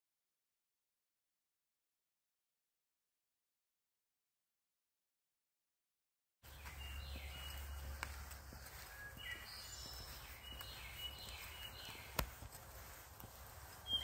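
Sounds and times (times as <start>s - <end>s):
songbirds singing: 6.4s - 14.0s.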